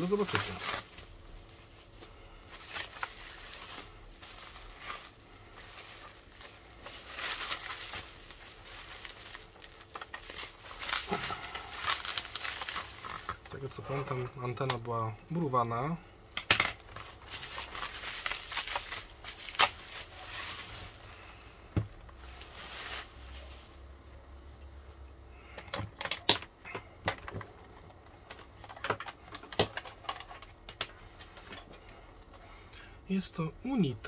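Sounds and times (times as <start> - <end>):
bubble wrap crackling and rustling: 0.0 - 15.6, 16.8 - 24.0.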